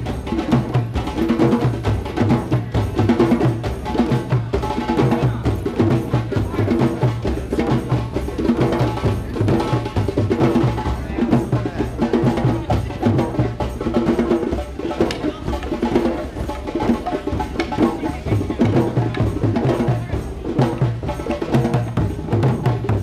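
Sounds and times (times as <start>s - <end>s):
hand drums playing: 0.0s - 23.0s
low frame drum beat: 0.0s - 23.0s.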